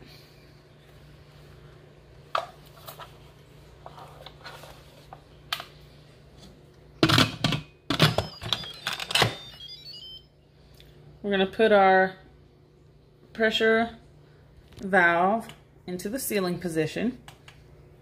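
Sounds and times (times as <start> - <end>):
low steady hum: 0.0 - 18.0
high electronic tones: 8.0 - 10.4.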